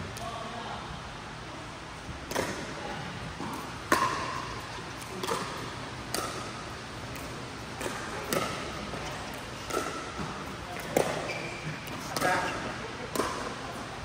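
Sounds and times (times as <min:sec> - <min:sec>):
pickleball paddles striking ball: 0:02.3 - 0:02.7, 0:03.4 - 0:12.4, 0:13.1 - 0:13.6.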